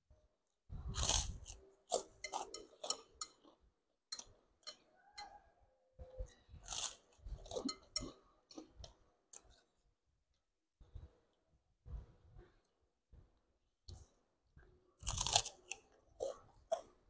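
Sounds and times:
chewing noodles: 6.3 - 9.7.

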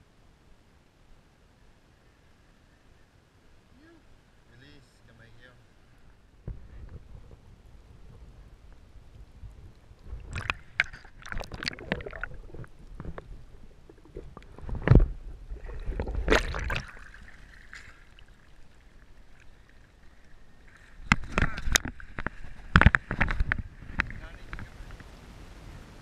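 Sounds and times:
water sloshing and splashing: 10.0 - 24.9
sharp knocks underwater: 10.1 - 17.2, 21.0 - 24.7.

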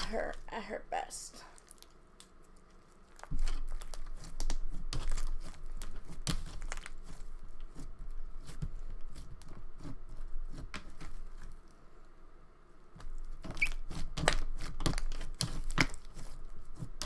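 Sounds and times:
slime crackling and popping: 1.5 - 7.8, 13.4 - 16.3.

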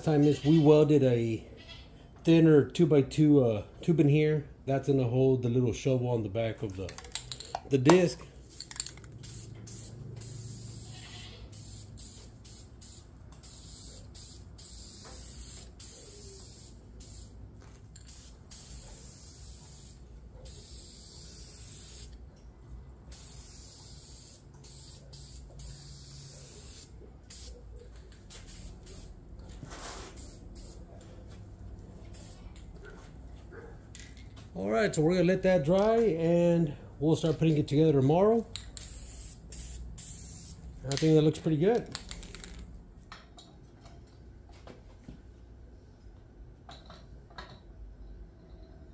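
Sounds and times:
spray paint can hissing: 8.5 - 10.9, 11.5 - 17.4, 18.0 - 22.2, 23.1 - 27.5, 28.3 - 29.1, 29.8 - 30.8, 32.1 - 32.4, 38.8 - 40.6.

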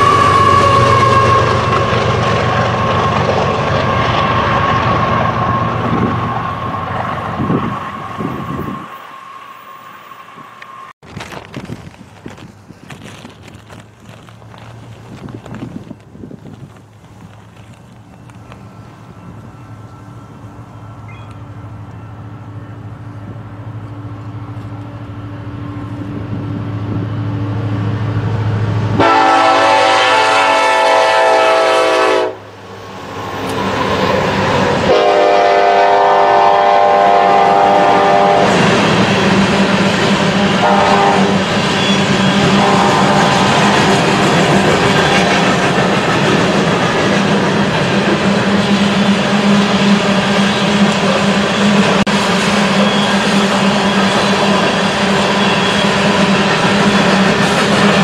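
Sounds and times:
train horn blasts: 0.0 - 1.9, 29.0 - 32.5, 34.8 - 38.6, 40.6 - 44.2
locomotive engines humming: 0.0 - 58.0
train wheels on rails: 0.0 - 58.0.

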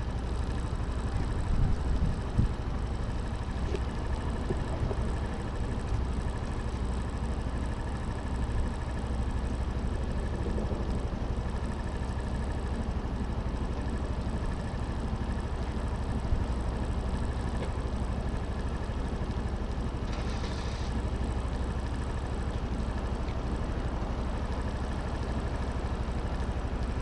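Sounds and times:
scooter engine idling: 0.0 - 27.0
short hiss: 20.1 - 21.0.

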